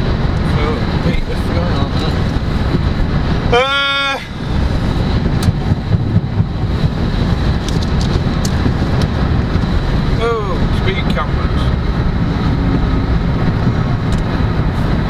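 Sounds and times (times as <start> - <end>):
tyre and road noise on wet road: 0.0 - 15.0
held pitched tone: 3.5 - 4.6.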